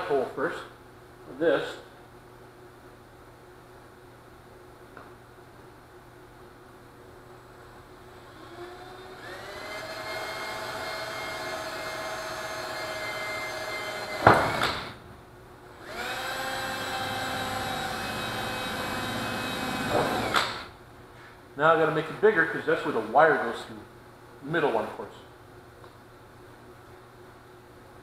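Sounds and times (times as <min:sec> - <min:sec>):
cordless drill whine: 0:08.2 - 0:15.0, 0:15.7 - 0:20.7
drill bit biting burst: 0:08.4 - 0:15.0, 0:15.8 - 0:20.7.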